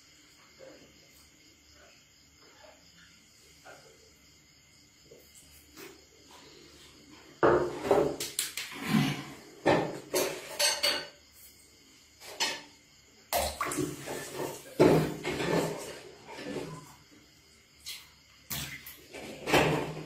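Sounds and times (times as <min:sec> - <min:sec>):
knocks against a tub: 0:13.3 - 0:15.9
water splashing in a basin: 0:13.3 - 0:17.0, 0:17.8 - 0:19.8.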